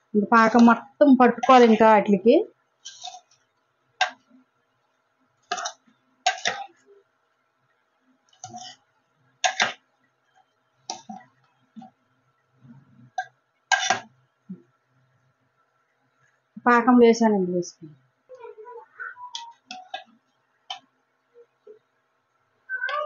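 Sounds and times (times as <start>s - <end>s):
spoon scraping and knocking in pot: 0.4s - 1.9s, 2.8s - 4.3s, 5.4s - 6.8s, 8.3s - 9.9s, 13.1s - 14.2s, 19.4s - 20.9s.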